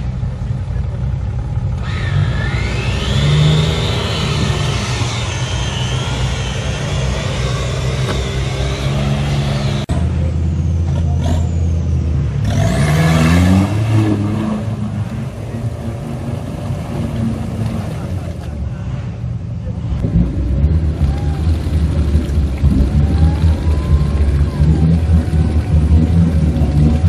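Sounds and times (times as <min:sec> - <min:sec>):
off-road engine revving: 0:00.0 - 0:27.0
high whine: 0:01.8 - 0:10.9.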